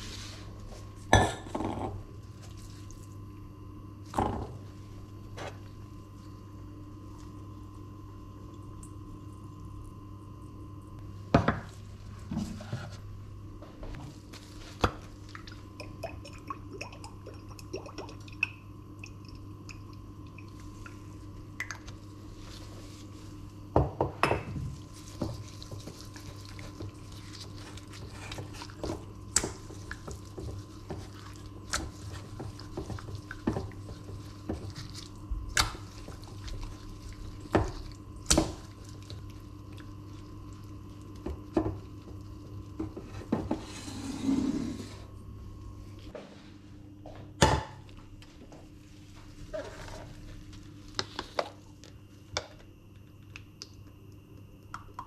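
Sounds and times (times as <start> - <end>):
steady low hum: 0.0 - 55.0
hands squishing raw chicken: 24.8 - 42.5.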